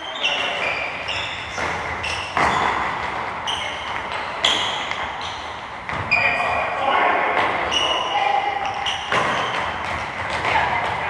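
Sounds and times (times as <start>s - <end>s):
shoe squeaks: 0.0s - 6.8s, 7.6s - 10.0s
footballs thudding: 0.4s - 6.6s, 8.6s - 11.0s.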